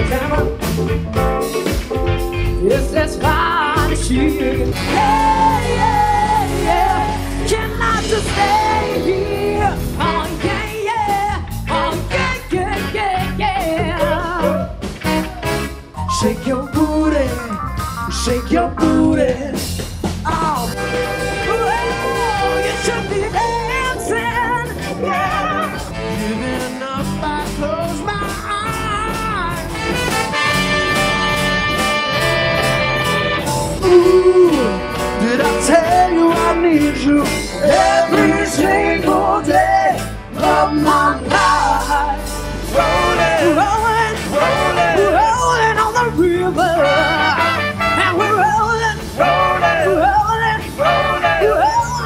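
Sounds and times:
electric guitar: 0.0s - 20.0s, 20.7s - 52.0s
drums keeping a steady beat: 0.0s - 52.0s
live rock band playing: 0.0s - 52.0s
female singing with vibrato: 3.3s - 14.7s, 21.5s - 29.8s
horn section sustained chord: 20.8s - 23.6s.

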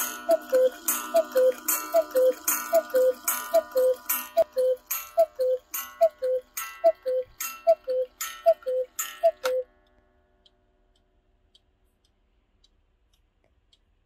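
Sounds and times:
cuckoo clock two-note call: 0.0s - 9.7s.

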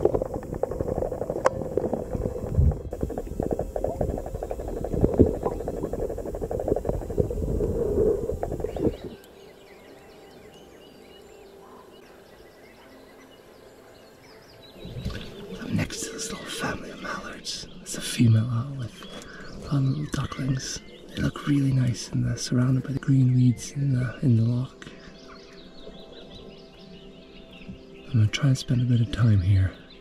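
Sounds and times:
water churning underwater: 0.0s - 9.2s.

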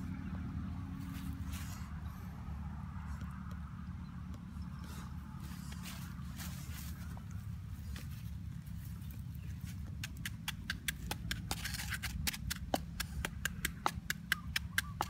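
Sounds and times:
pestle pounding in mortar: 10.0s - 15.0s.

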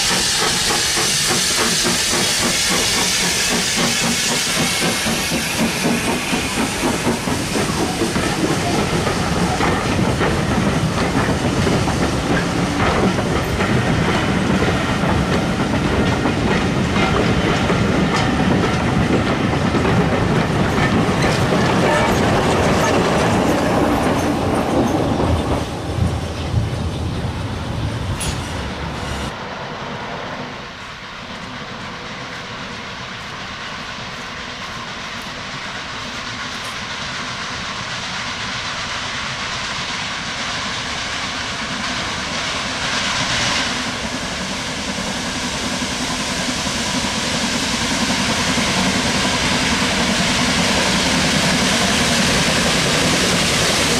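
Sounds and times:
train wheels clicking over rail joints: 0.0s - 27.1s
steam hissing: 0.0s - 53.9s.

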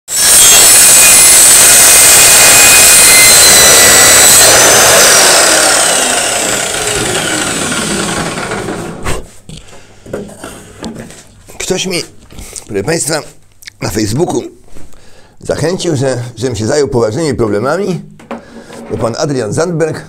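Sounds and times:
circular saw cutting board: 0.1s - 9.0s
saw motor winding down: 0.1s - 9.0s.

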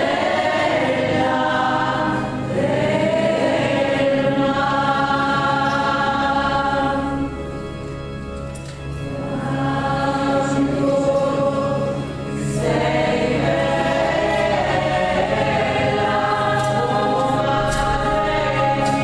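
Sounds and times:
choir singing: 0.0s - 8.2s, 8.8s - 19.0s.

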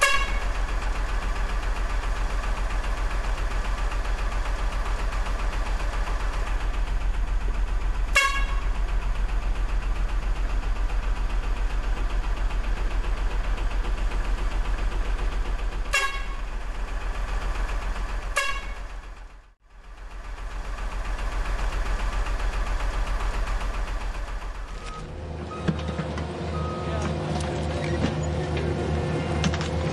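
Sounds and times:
horn toots: 0.0s - 0.4s, 8.1s - 8.6s, 15.9s - 16.4s, 18.3s - 18.8s
truck engine droning: 0.0s - 29.9s.

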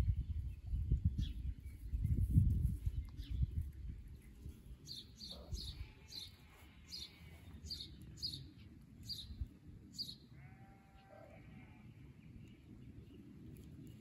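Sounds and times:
small bird chirping: 0.0s - 9.4s.

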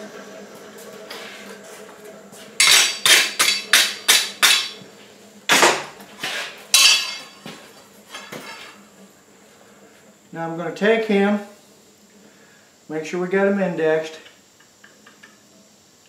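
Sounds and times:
metal striking an anvil: 2.6s - 4.8s, 6.8s - 7.4s.

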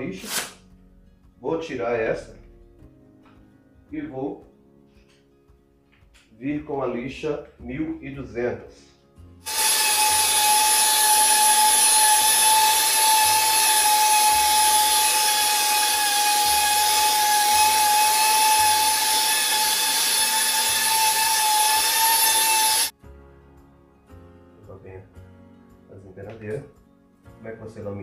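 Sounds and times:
orbital sander whining: 9.5s - 22.9s.

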